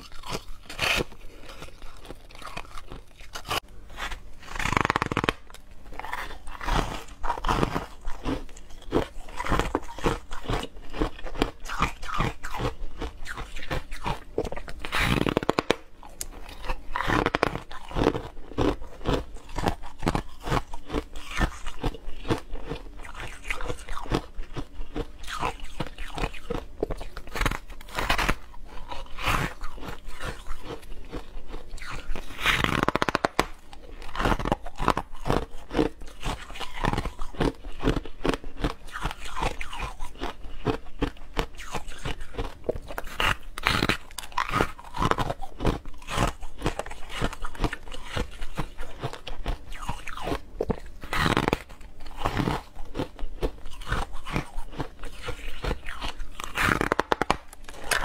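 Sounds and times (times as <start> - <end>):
frost being bitten and chewed: 0.0 - 58.0.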